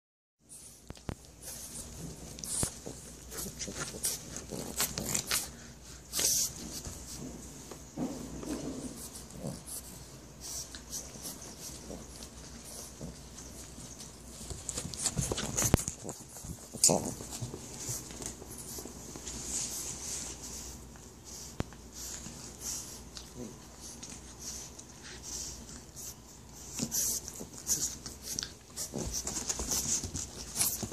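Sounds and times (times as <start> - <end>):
paws scuffing on carpet: 0.6 - 23.1, 23.7 - 30.9
fabric toy rustling: 10.8 - 20.6, 27.0 - 30.9.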